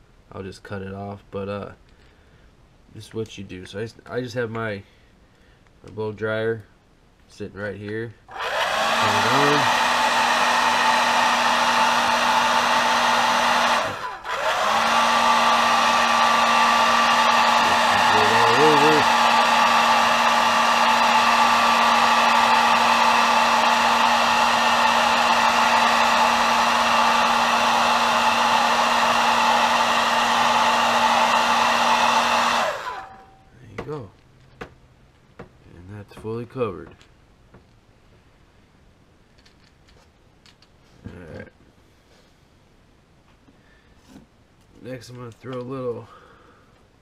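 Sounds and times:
blow dryer humming: 8.3s - 33.4s.

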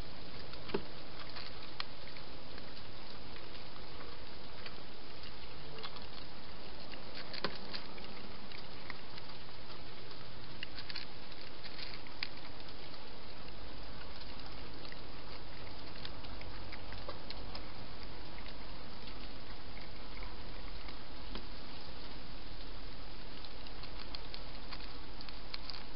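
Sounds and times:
cat eating crunchy food: 0.0s - 25.9s.

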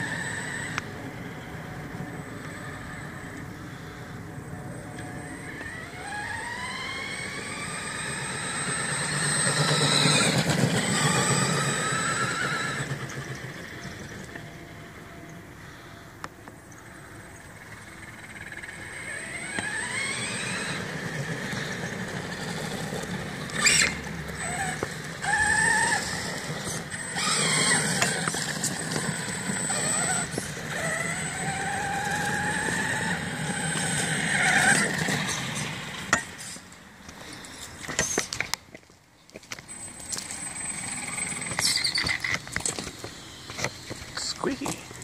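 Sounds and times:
electric motor whine: 0.0s - 38.6s, 39.5s - 45.0s
tires rumbling on pavement: 0.0s - 45.0s.

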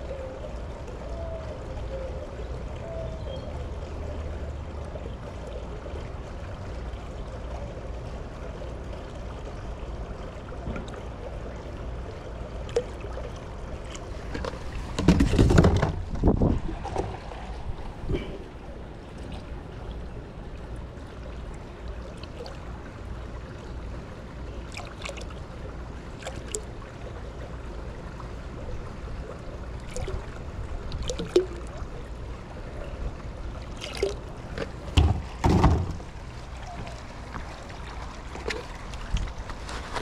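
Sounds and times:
liquid trickling into pool water: 0.0s - 40.0s
plastic jugs knocking: 14.4s - 16.3s, 34.9s - 36.0s
thumps: 14.4s - 16.3s, 35.0s - 36.0s.

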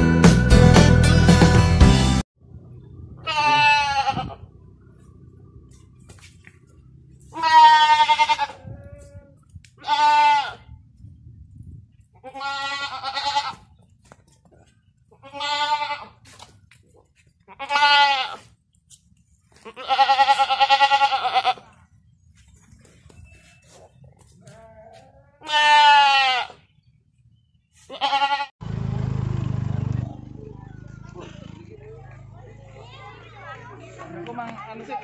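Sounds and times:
goat bleating: 3.2s - 4.5s, 7.2s - 10.7s, 12.2s - 13.7s, 15.1s - 16.3s, 17.4s - 18.5s, 19.6s - 21.8s, 24.4s - 26.7s, 27.8s - 28.5s.

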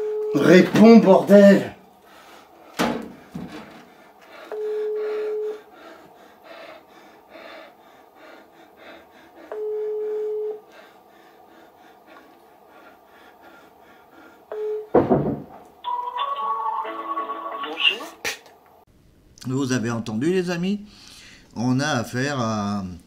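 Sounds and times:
telephone ringback tone: 15.9s - 17.8s.

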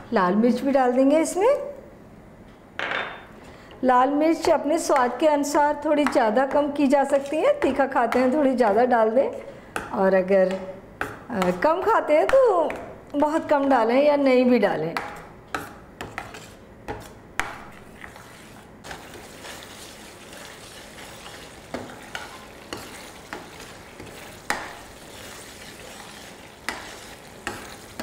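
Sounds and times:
paste sizzling in oil: 17.8s - 28.0s.

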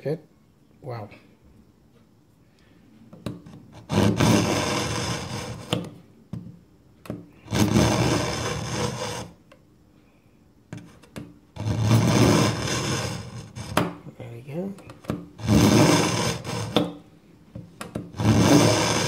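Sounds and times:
knife grating through sharpener: 3.5s - 5.9s, 7.4s - 9.4s, 11.6s - 13.8s, 15.4s - 17.0s, 18.1s - 19.0s.

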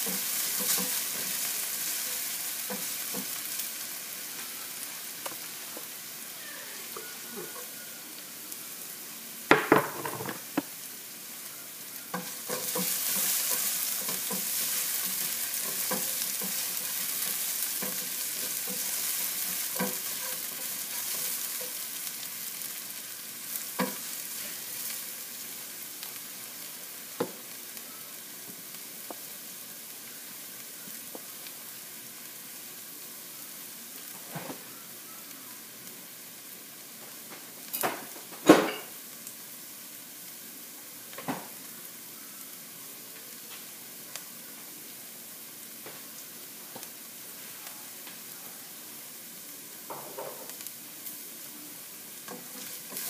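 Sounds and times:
spatula tapping and scraping pan: 0.0s - 1.4s, 12.1s - 21.8s, 52.3s - 53.0s
ginger sizzling in oil: 0.0s - 53.0s.

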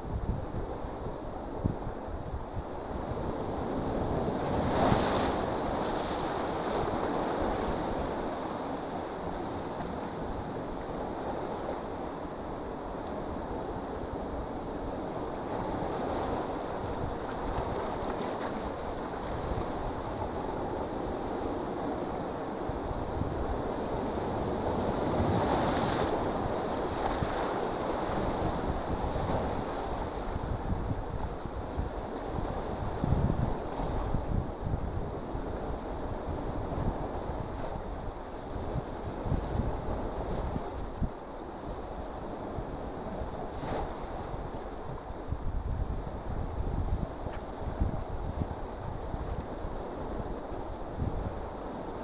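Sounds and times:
wind buffeting microphone: 0.0s - 8.0s, 22.7s - 41.2s, 44.2s - 51.5s
surf washing against rocks: 2.5s - 52.0s.

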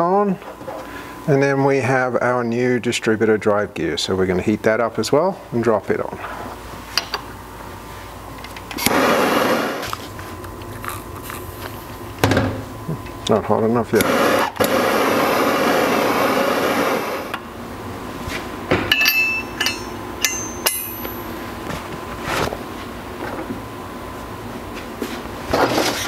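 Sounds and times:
torch flame hissing: 8.8s - 10.0s, 14.0s - 17.4s
light metallic clinks: 18.9s - 21.2s.

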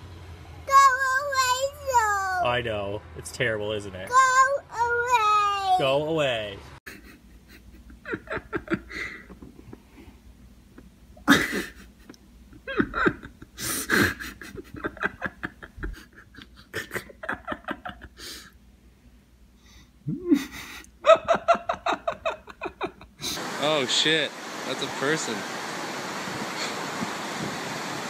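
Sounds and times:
person laughing: 6.9s - 10.0s, 10.8s - 18.5s, 20.0s - 23.4s.

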